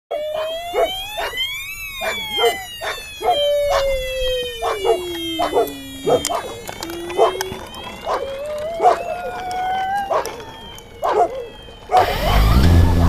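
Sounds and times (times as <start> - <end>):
quadcopter motors whining: 0.1 - 13.0
dog barking: 0.4 - 1.4, 2.0 - 3.9, 4.6 - 6.6, 8.8 - 9.0, 11.0 - 12.6.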